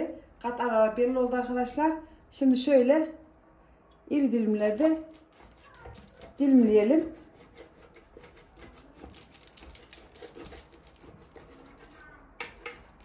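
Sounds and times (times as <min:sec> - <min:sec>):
knife cutting crisp crust: 0:04.6 - 0:13.0.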